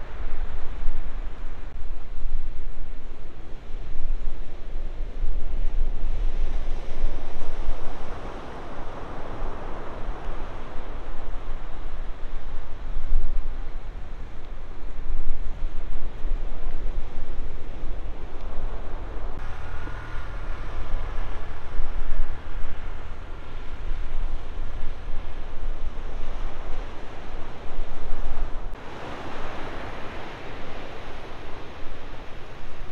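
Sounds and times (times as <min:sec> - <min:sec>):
wind buffeting microphone: 0:00.0 - 0:32.9
ocean surf breaking: 0:28.8 - 0:32.9.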